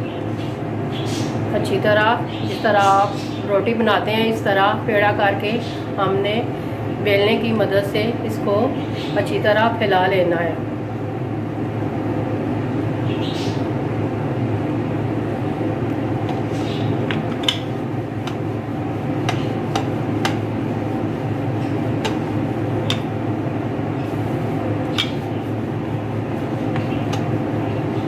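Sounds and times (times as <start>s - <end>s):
steady background hum: 0.0s - 28.0s
rolling pin on dough: 16.2s - 23.2s, 23.9s - 28.0s
sharp clicks and knocks: 17.1s - 18.4s, 19.2s - 20.4s.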